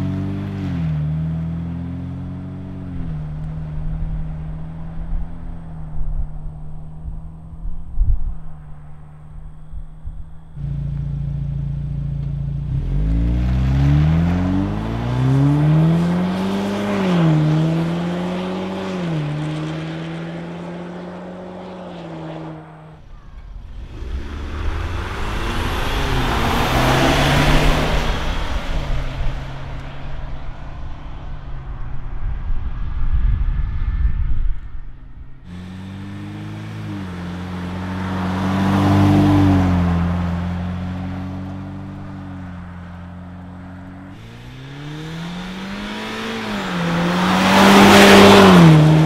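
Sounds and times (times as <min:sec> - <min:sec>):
car driving past: 0:00.0 - 0:49.0
car exhaust accelerating: 0:00.0 - 0:49.0.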